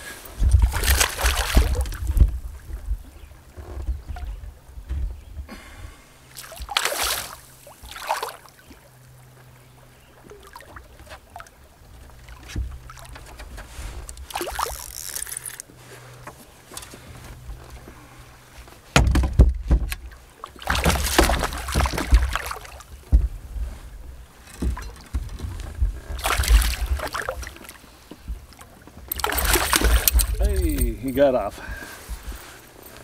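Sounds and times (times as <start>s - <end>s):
wind on microphone: 0.0s - 5.4s
handling noises in canoe: 0.0s - 33.0s
water splashes: 0.4s - 2.7s, 6.3s - 9.5s, 10.2s - 15.6s, 20.0s - 23.1s, 26.0s - 31.0s.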